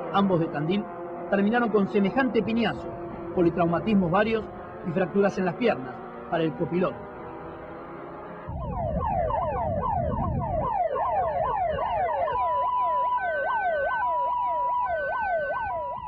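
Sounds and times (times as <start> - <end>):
ambulance siren yelp: 0.0 - 16.0
higher siren tone: 0.0 - 16.0
steady siren tone: 0.0 - 16.0.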